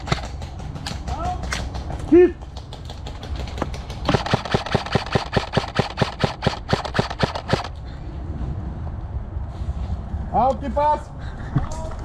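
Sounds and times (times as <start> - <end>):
airsoft gun rapid fire: 0.0 - 7.8
scattered clicks: 0.0 - 7.8.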